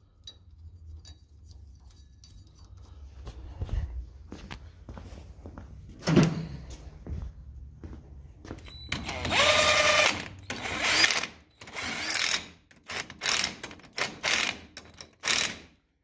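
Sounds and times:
impact wrench bursts: 0:08.9 - 0:15.8.

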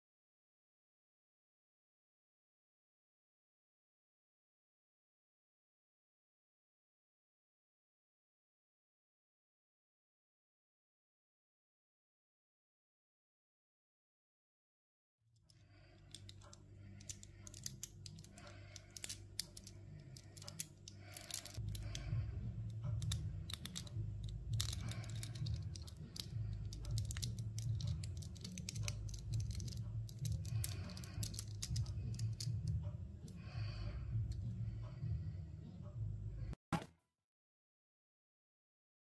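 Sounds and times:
small plastic clicks and snaps: 0:16.0 - 0:22.1, 0:22.7 - 0:33.4
low rumble: 0:19.2 - 0:36.6.

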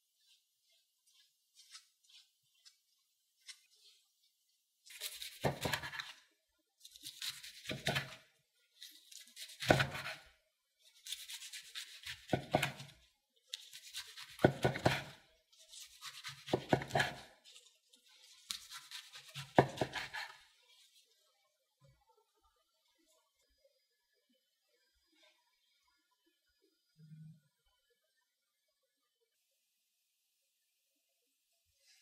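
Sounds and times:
knife slicing crisp seaweed roll: 0:00.6 - 0:02.8, 0:03.4 - 0:04.0, 0:04.8 - 0:20.6.

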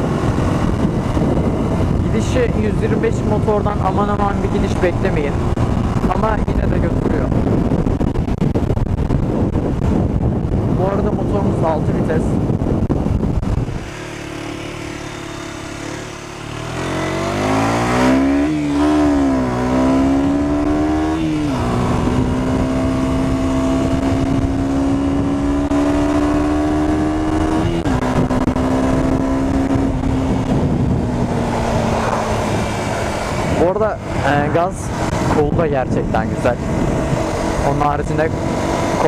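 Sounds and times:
motorcycle engine revving and shifting: 0:00.0 - 0:11.8, 0:12.4 - 0:39.0.

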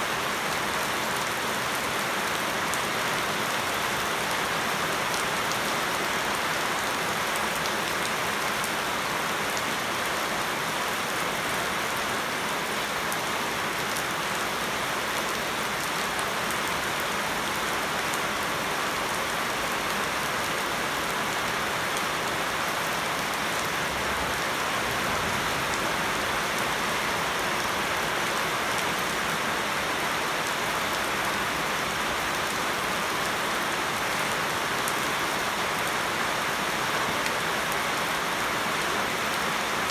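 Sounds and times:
heavy rain on leaves and water: 0:00.0 - 0:39.9.

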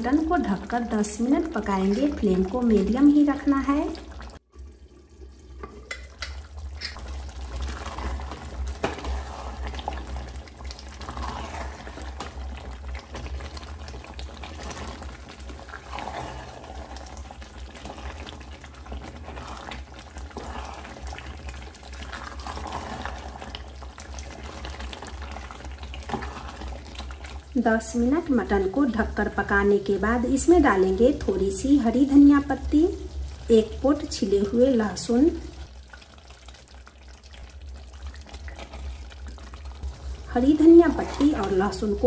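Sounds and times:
curry bubbling in pot: 0:00.0 - 0:42.0
wooden spatula stirring: 0:05.6 - 0:28.2, 0:34.2 - 0:42.0.

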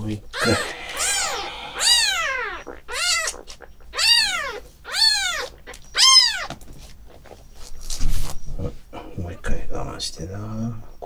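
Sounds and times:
kitten crying loudly: 0:00.4 - 0:06.5.

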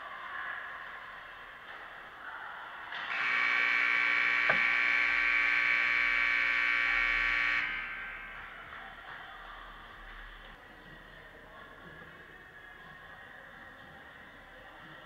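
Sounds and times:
electric horn buzzing: 0:03.1 - 0:08.7.

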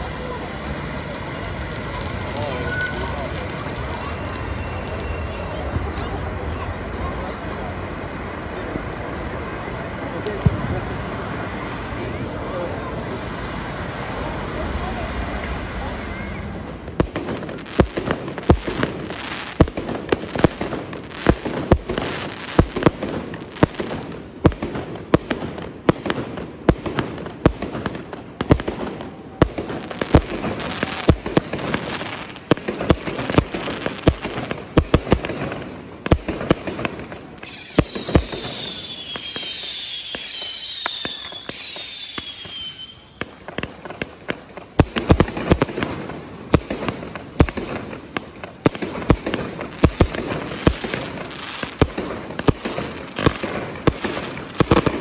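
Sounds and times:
falling firework whistles: 0:00.0 - 0:07.8, 0:36.5 - 0:44.0
fireworks bangs: 0:00.0 - 0:55.0
fireworks crackling: 0:00.0 - 0:55.0.

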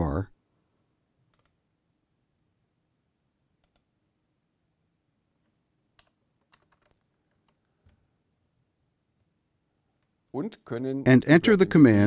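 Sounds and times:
computer mouse clicks: 0:01.3 - 0:01.6, 0:03.6 - 0:03.9, 0:06.0 - 0:08.0.

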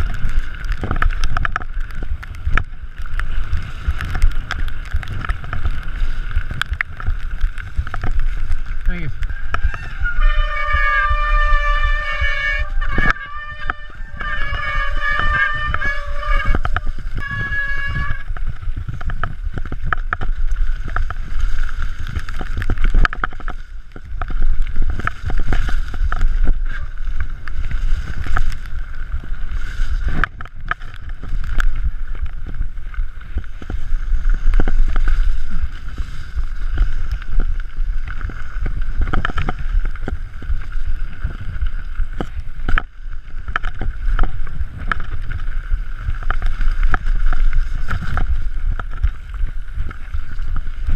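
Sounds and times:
bike rattling and knocking: 0:00.0 - 0:50.9
tyres on dirt: 0:00.0 - 0:50.9
wind buffeting microphone: 0:00.0 - 0:50.9
brief squeal: 0:09.6 - 0:18.2.

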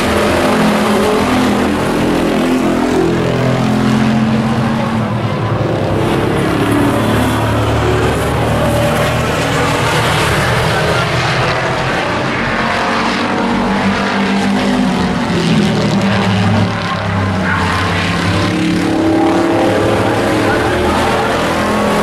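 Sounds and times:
racing truck engines: 0:00.0 - 0:22.0.

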